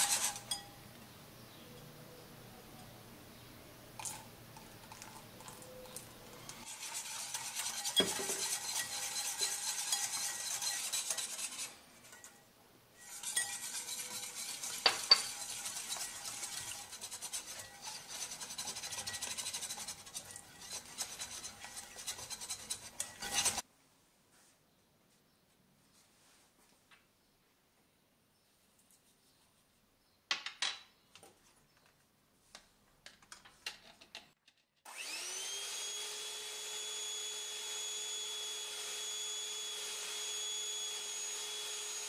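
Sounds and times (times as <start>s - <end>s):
whisk scraping bowl: 0.0s - 0.7s, 5.0s - 12.4s, 13.0s - 23.6s.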